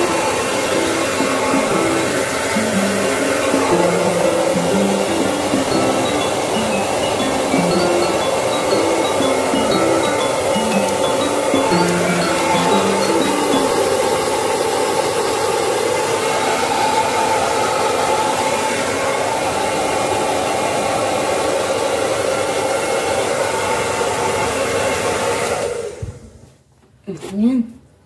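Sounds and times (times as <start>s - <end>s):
hair dryer blowing: 0.0s - 26.4s.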